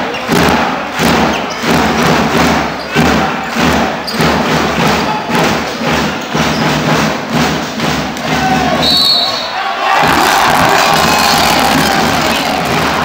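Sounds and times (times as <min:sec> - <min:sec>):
arena crowd noise: 0:00.0 - 0:13.0
drum beating steadily: 0:00.2 - 0:09.0, 0:10.0 - 0:13.0.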